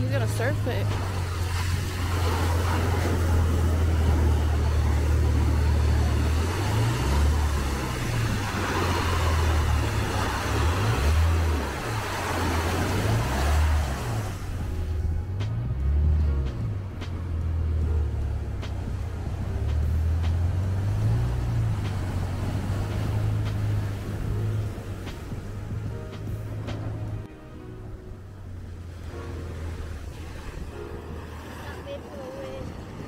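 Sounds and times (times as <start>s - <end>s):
wind rumble on microphone: 0.0s - 27.3s, 27.9s - 33.0s
ocean waves breaking on rocks: 28.6s - 33.0s.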